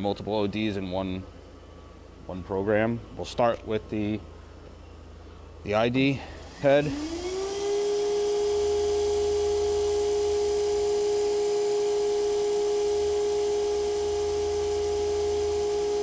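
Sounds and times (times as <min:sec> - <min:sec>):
grinding spindle whine: 0:06.3 - 0:16.0.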